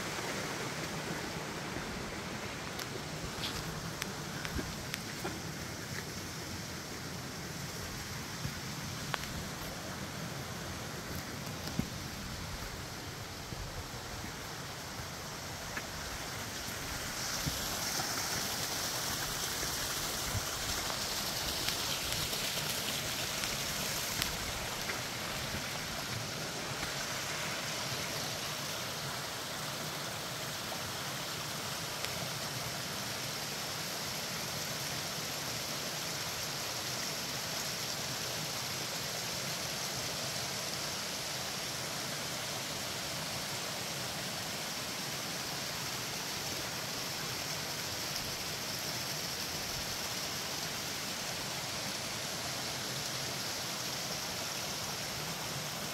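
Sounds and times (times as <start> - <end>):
waterfall rushing: 0.0 - 55.9.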